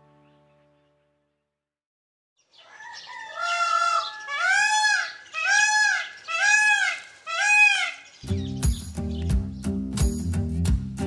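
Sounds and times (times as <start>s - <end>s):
animal crying: 3.2s - 8.0s.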